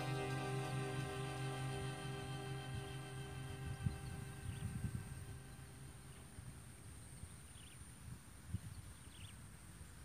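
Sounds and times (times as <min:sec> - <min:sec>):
bird chirps: 0:00.0 - 0:06.3
steady high-pitched tone: 0:00.0 - 0:06.7
wind rumbling on microphone: 0:00.0 - 0:10.0.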